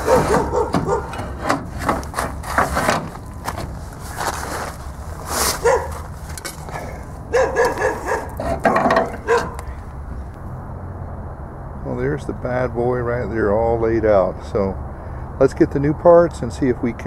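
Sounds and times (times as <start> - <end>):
metal clanks and knocks: 0.0 - 3.9, 6.3 - 9.8.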